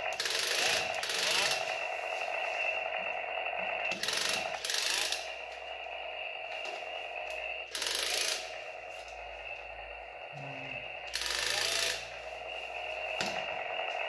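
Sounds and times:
toy chainsaw ratcheting clatter: 0.1s - 1.6s, 7.7s - 8.4s, 11.1s - 12.0s.

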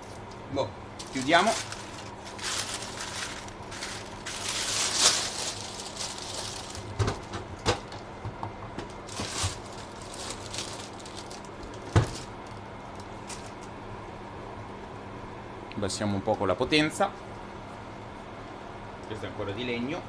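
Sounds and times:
parchment paper rustling: 1.0s - 7.3s, 9.0s - 12.3s.

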